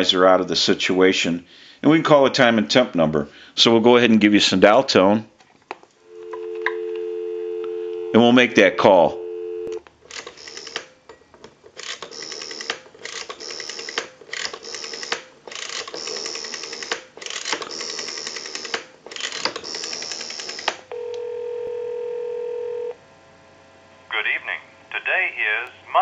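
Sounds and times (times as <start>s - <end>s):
steady telephone line tone: 6.0s - 9.8s, 19.7s - 23.0s
rotary dial whirring clicks: 11.7s - 20.9s.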